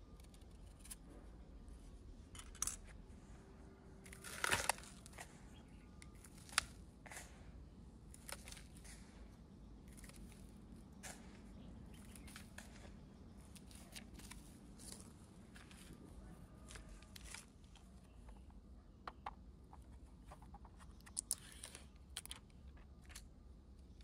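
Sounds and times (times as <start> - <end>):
low steady hum: 0.0 - 24.0
clicks and snips: 4.1 - 7.4, 16.6 - 23.3.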